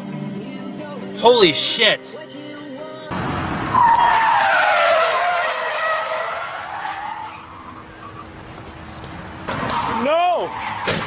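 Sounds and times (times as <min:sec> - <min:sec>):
car tyres screeching in a skid: 0:03.6 - 0:08.4, 0:09.4 - 0:11.0.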